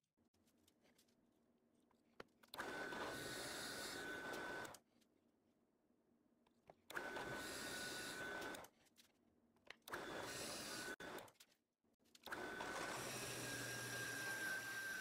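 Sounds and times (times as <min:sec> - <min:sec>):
drill press boring into wood: 0:09.9 - 0:11.0, 0:12.3 - 0:15.0.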